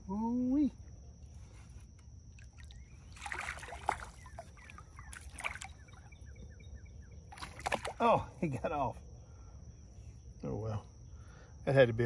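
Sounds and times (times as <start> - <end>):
fish thrashing and splashing: 2.3 - 6.2, 7.2 - 8.0.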